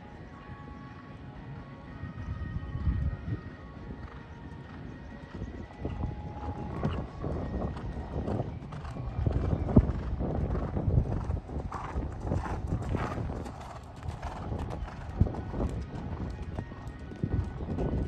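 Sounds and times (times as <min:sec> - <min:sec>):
horse hooves cantering on sand: 0:04.0 - 0:18.0.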